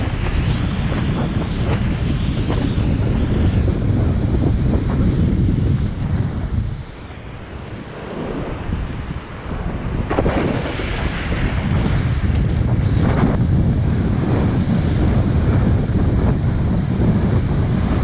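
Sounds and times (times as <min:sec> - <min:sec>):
wind buffeting microphone: 0:00.0 - 0:18.0
rushing splashing water: 0:07.8 - 0:13.2.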